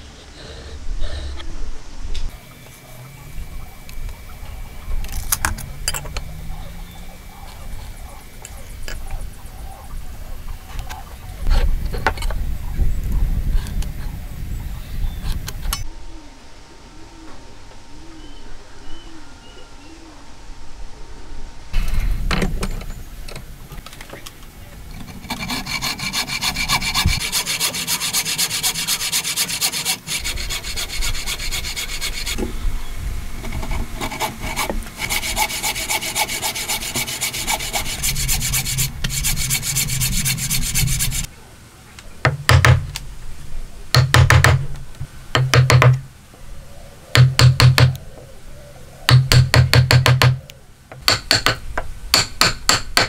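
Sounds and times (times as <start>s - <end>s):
hand saw cutting wood: 25.0s - 32.4s, 33.5s - 41.3s.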